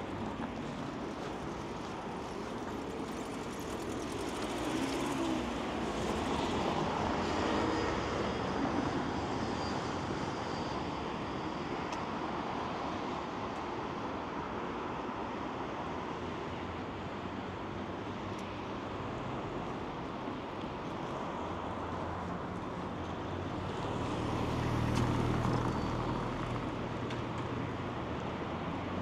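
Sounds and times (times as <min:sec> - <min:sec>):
city street noise: 0:00.0 - 0:29.0.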